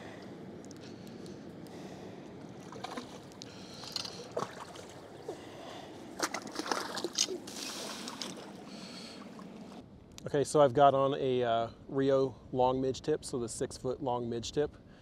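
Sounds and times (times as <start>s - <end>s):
landing net scooping water: 2.6s - 5.4s, 6.1s - 9.8s.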